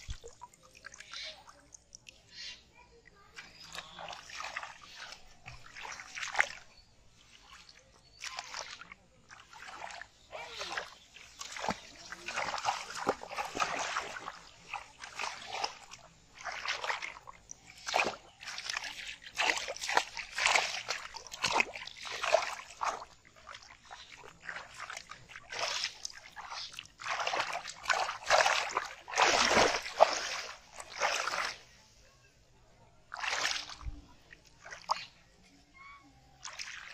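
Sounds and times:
splashing in shallow water: 0.0 - 32.0, 33.0 - 36.9
fish thrashing in water: 7.4 - 31.6.

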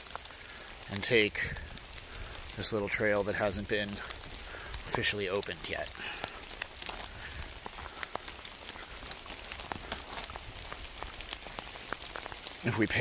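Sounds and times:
downpour rain hiss: 0.0 - 13.0
sharp raindrop hits: 0.0 - 13.0.

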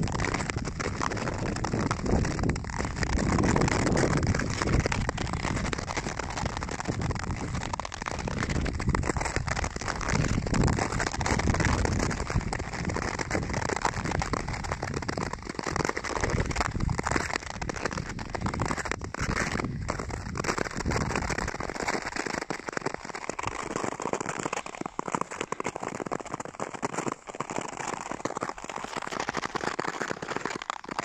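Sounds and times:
wind rumble on microphone: 0.0 - 21.9
skate blades scraping on ice: 0.0 - 31.0.

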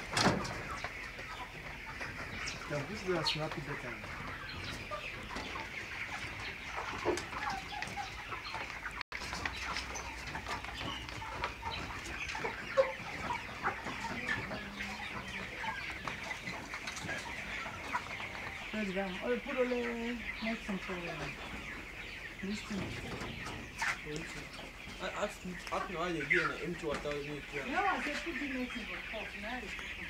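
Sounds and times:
flock of chickens clucking: 0.0 - 30.0.

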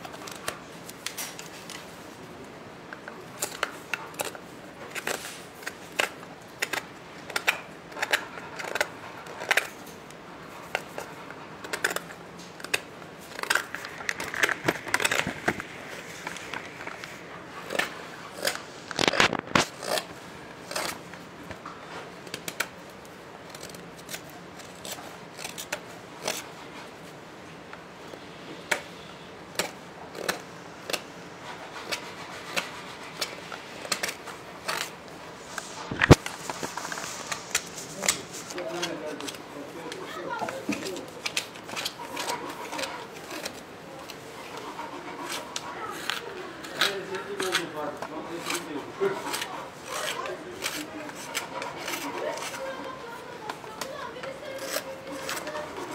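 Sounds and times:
knife scraping wood: 3.4 - 22.8, 23.4 - 27.1, 28.7 - 55.9.

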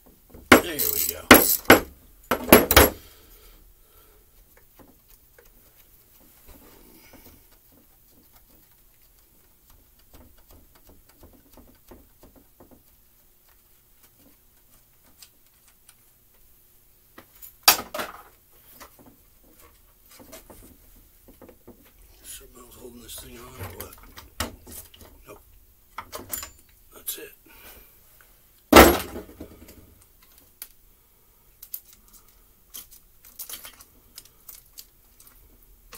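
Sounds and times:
sharp metallic clatter: 0.5 - 3.0
handling noise and small clicks: 29.7 - 30.8, 31.6 - 35.9.

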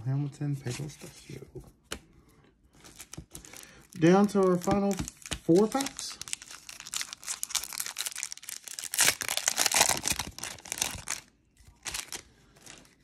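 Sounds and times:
foil wrapper tearing and crinkling: 2.8 - 13.0.

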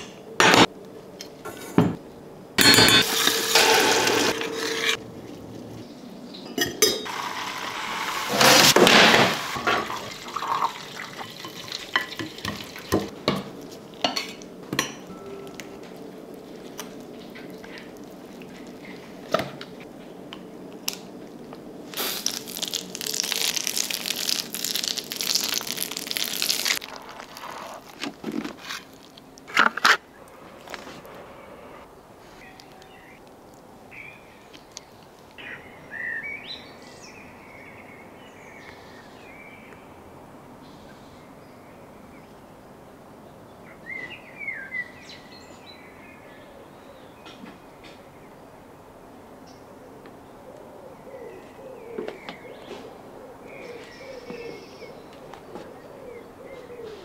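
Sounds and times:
steady hiss: 21.9 - 23.0.

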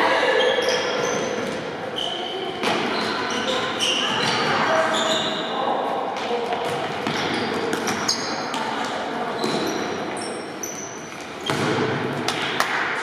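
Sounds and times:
sneakers squeaking on court: 0.4 - 5.5, 6.5 - 8.6, 9.3 - 11.8.

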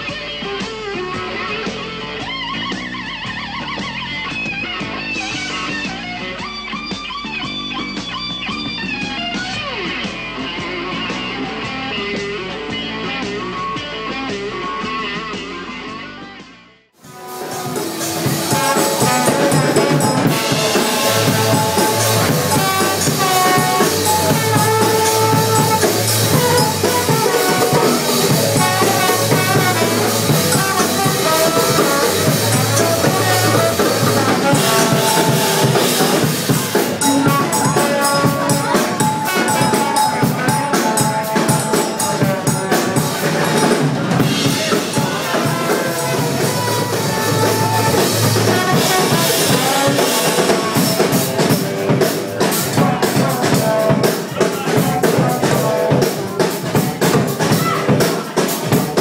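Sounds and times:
live band playing loudly: 0.0 - 59.0
drum kit: 17.0 - 59.0.

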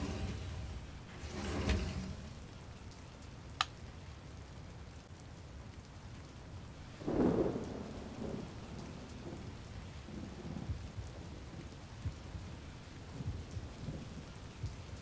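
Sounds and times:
thunder rumble: 0.0 - 3.0, 6.9 - 15.0
steady rain: 0.0 - 15.0.

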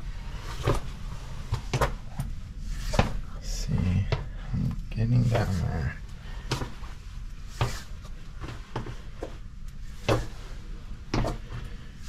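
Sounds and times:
footsteps: 2.7 - 11.7.

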